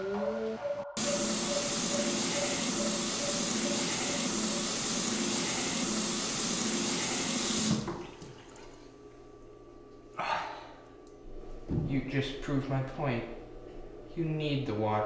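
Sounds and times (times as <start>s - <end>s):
faucet running: 1.0s - 8.8s.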